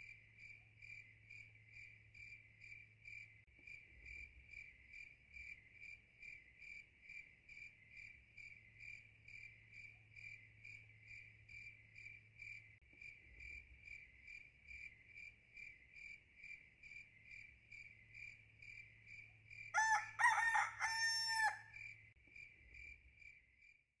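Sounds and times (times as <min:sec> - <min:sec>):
cricket chirping: 0:00.0 - 0:23.9
rooster crowing: 0:19.7 - 0:21.8.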